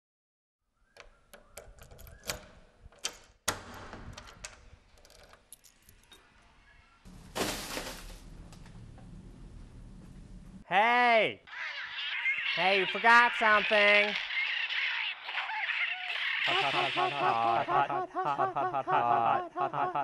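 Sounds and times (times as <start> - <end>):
key clicking in door lock: 1.0 - 6.2
keys jangling: 5.0 - 6.2
plastic bag rustling: 7.1 - 8.5.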